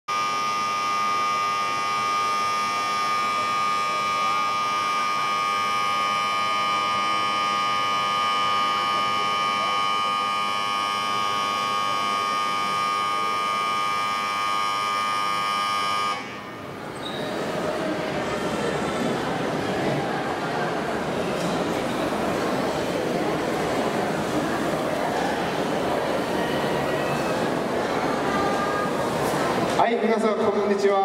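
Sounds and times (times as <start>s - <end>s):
electronic buzzing tone: 0.1s - 16.8s.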